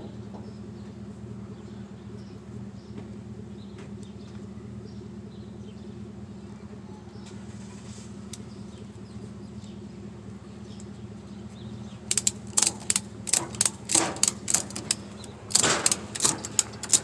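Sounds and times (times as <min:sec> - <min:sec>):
steady low hum: 0:00.0 - 0:17.0
ratchet strap pawl clicking: 0:12.1 - 0:17.0.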